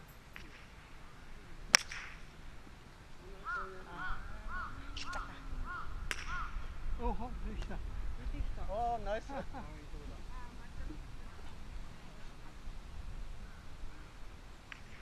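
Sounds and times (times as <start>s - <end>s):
golf club striking ball: 1.7s - 2.4s, 6.0s - 6.7s
crow cawing: 3.4s - 6.8s.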